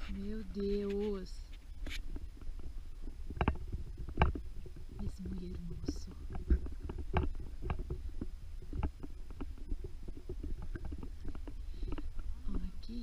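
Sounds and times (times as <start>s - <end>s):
low wind rumble: 0.0s - 13.0s.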